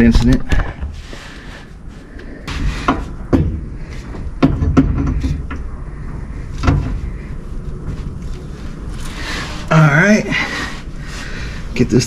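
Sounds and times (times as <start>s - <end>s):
low handling rumble: 0.0s - 12.0s
metal knocks and clunks: 2.5s - 5.7s, 6.6s - 7.1s.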